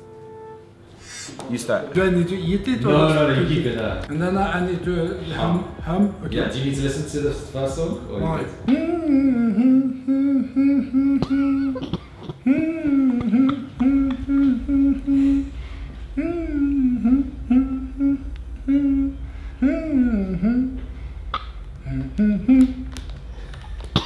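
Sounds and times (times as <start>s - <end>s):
man humming a melody: 8.6s - 23.4s.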